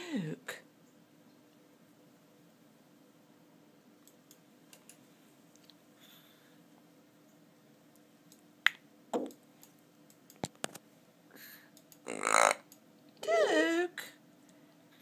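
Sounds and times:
parrot burping: 12.0 - 12.7.

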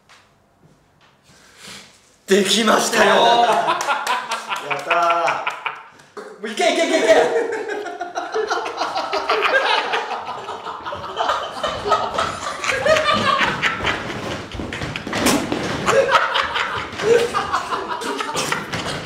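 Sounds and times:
men's voices: 2.3 - 10.5
men laughing hard: 3.0 - 5.9, 6.7 - 19.0.

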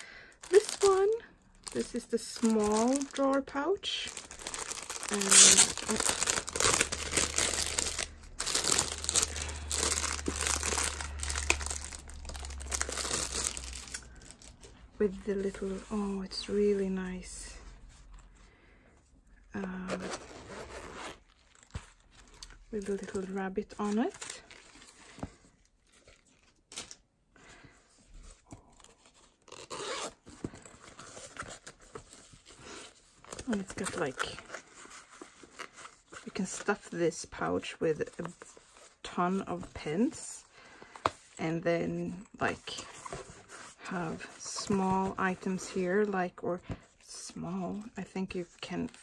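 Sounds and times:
plastic wrapping crinkling: 0.0 - 14.9, 20.0 - 27.0
cloth pouch rustling: 0.4 - 14.7, 28.3 - 36.2.

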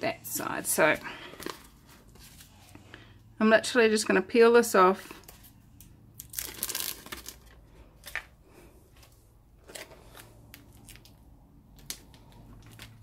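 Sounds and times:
plastic film crinkling: 6.2 - 8.3, 9.6 - 13.0.

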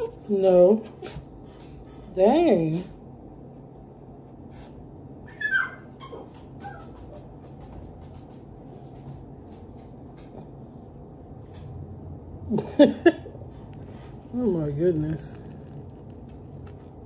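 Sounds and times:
dog whining: 0.0 - 0.3, 5.2 - 7.2
steady low hum: 0.0 - 5.3, 6.3 - 17.0.

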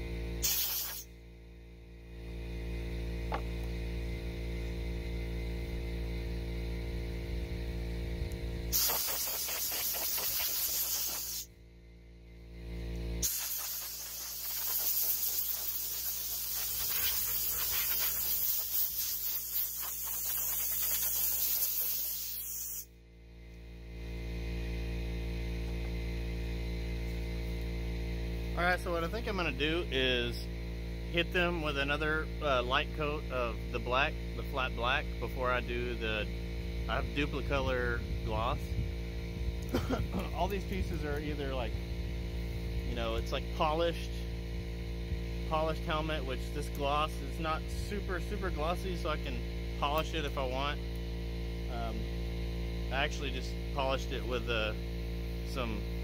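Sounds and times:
steady low hum: 0.0 - 56.0
compressed air blow gun hiss: 0.4 - 1.1, 8.7 - 11.5, 13.2 - 22.9.

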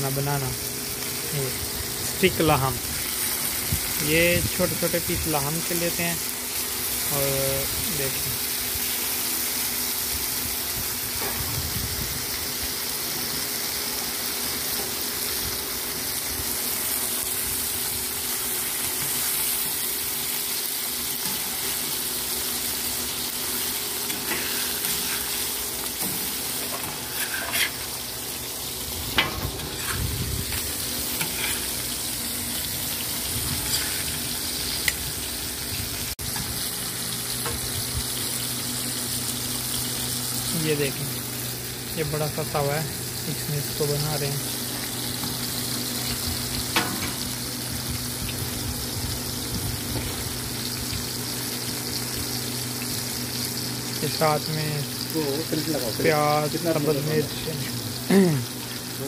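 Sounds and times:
steaks sizzling on griddle: 0.0 - 59.0
metal spatula scraping griddle: 23.6 - 28.1, 29.1 - 35.0, 46.0 - 47.3.

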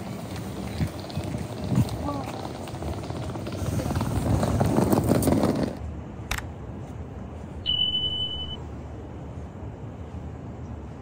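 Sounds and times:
train passing: 0.0 - 11.0
steady high beep: 7.6 - 8.6.

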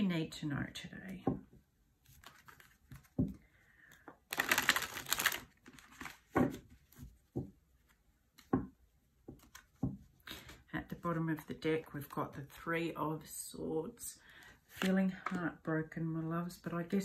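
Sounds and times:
cards riffle-shuffled: 4.3 - 7.1.

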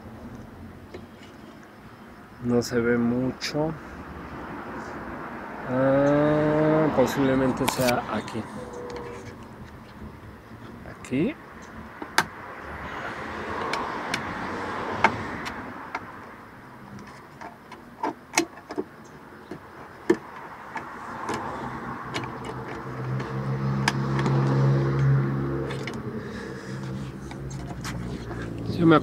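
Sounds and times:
ruler clicking and tapping on car: 13.6 - 14.3, 16.9 - 26.0.

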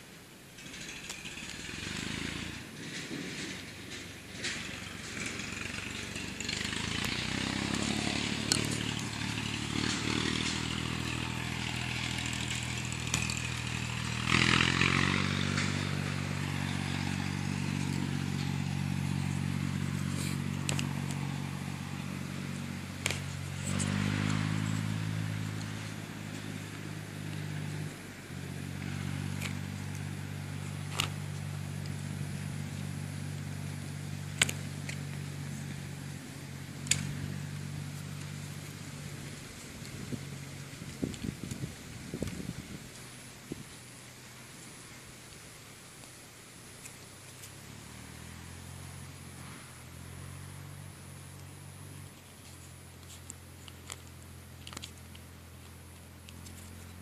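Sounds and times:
engine idling: 0.0 - 57.0.

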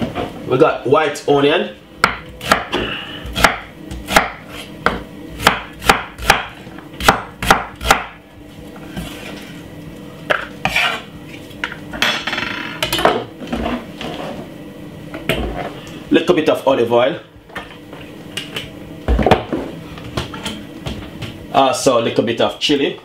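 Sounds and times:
knife chopping on wooden board: 2.0 - 8.2
soft knife scrapes: 10.6 - 11.1.

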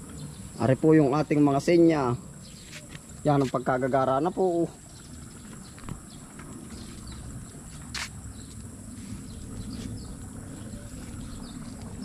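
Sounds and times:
faint chirps: 0.0 - 12.0
steady low rumble: 4.7 - 12.0.

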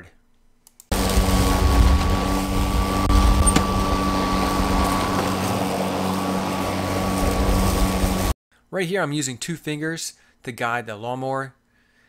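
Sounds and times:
electric lawn mower running: 0.9 - 8.4.

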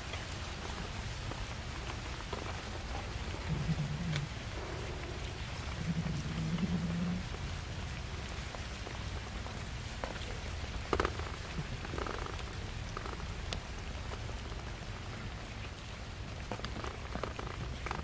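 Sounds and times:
steady low rumble: 0.0 - 16.4.

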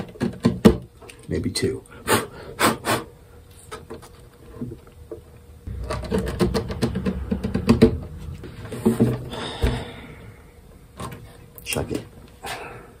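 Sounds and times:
low knock through hollow body: 5.7 - 11.0.

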